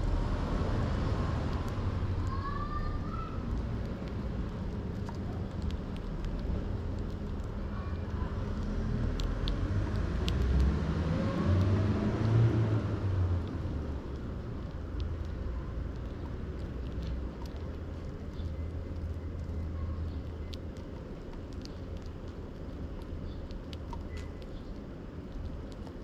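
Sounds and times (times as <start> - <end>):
motor vehicle passing: 3.6 - 19.2.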